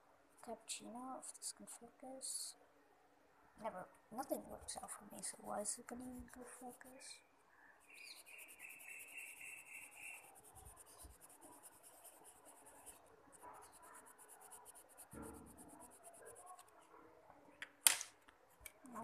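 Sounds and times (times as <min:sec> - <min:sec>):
pencil scratching on paper: 0:05.2 - 0:07.1, 0:07.9 - 0:17.0.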